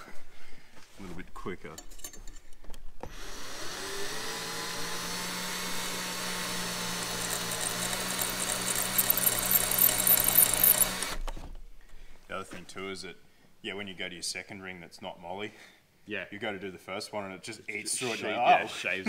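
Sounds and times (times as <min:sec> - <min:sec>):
cordless drill spinning: 0:03.0 - 0:11.3
high grinding hiss: 0:03.1 - 0:11.2.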